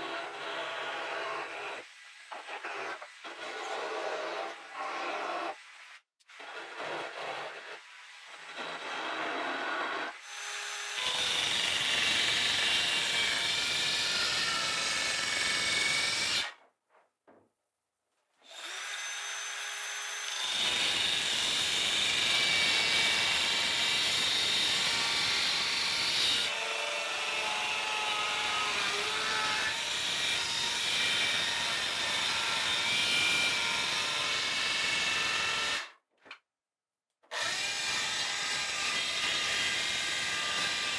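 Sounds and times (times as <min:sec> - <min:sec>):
circular saw cutting plywood: 0:00.0 - 0:16.6.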